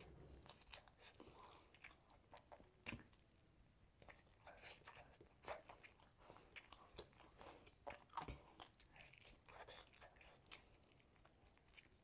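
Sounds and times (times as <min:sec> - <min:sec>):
person chewing food: 0:00.0 - 0:12.0
mouth clicks and crunches: 0:04.0 - 0:12.0.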